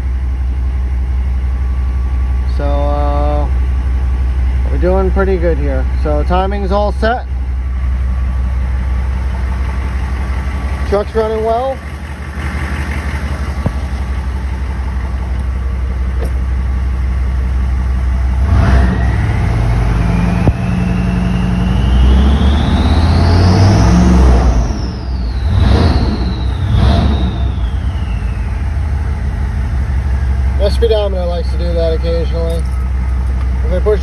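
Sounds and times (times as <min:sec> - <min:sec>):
diesel engine idling and revving: 0:00.0 - 0:34.0
turbocharger whistle: 0:18.5 - 0:30.3.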